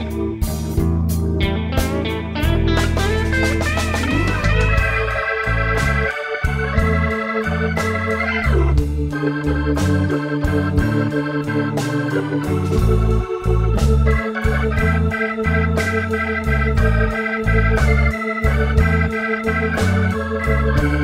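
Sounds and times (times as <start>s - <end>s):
bass line: 0.0s - 21.0s
organ chords: 0.0s - 21.0s
steady beat: 0.0s - 21.0s
sliding note falling in pitch: 3.0s - 6.0s.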